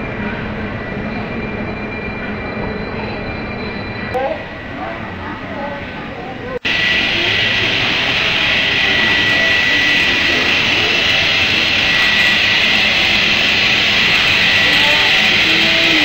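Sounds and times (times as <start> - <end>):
thin steady whistling tone: 0.0 - 5.1, 6.7 - 16.0
steam hissing from locomotive: 6.6 - 16.0.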